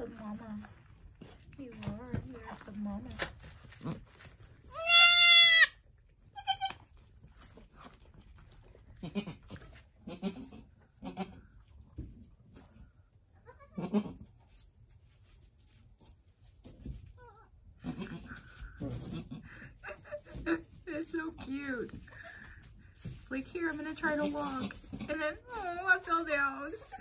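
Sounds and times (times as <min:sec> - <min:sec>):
goats bleating: 0:04.7 - 0:05.8, 0:13.5 - 0:14.2.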